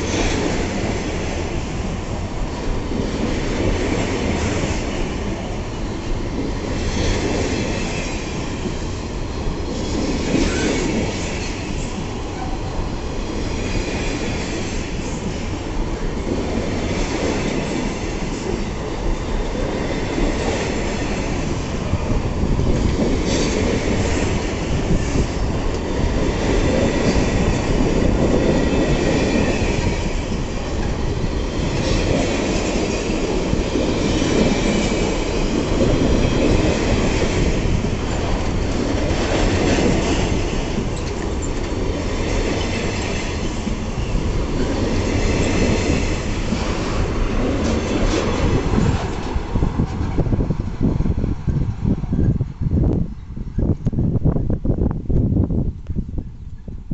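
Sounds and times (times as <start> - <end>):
train wheels rumbling on rail: 0.0 - 56.9
wheels clicking over rail joints: 22.9 - 50.2.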